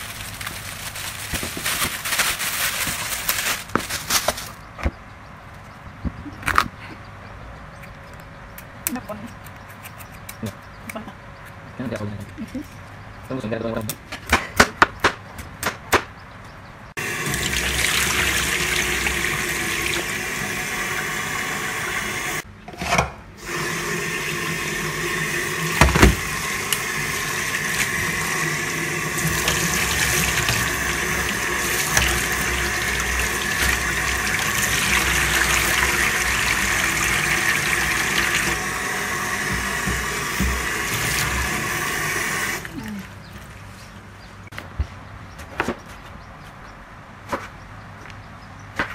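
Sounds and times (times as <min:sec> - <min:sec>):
tap water running into bowl: 0:17.0 - 0:22.4, 0:23.4 - 0:42.7.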